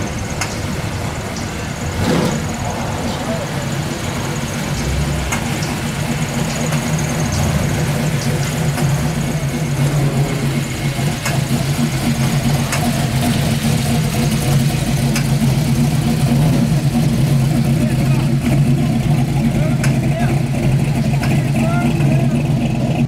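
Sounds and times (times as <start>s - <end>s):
car engine low rumble: 0.0s - 23.0s.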